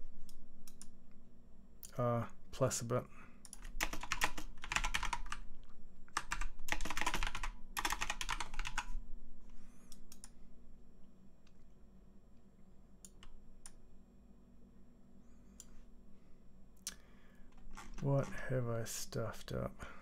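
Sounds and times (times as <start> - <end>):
low steady hum: 0.0 - 20.0
fast typing on keyboard: 3.5 - 5.4, 6.2 - 8.9.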